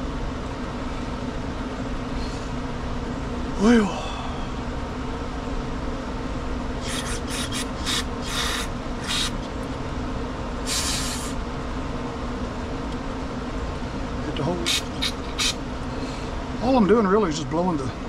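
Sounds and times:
steady background hum: 0:00.0 - 0:18.0
aerosol spray hissing bursts: 0:06.8 - 0:09.4, 0:10.7 - 0:11.4, 0:14.7 - 0:15.6.

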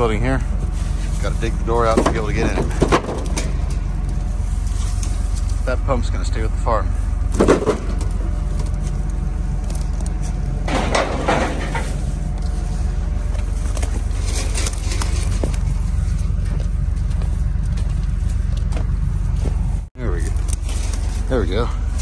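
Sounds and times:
digging scrapes and clunks: 0:00.0 - 0:22.0
low engine rumble: 0:00.0 - 0:22.0.

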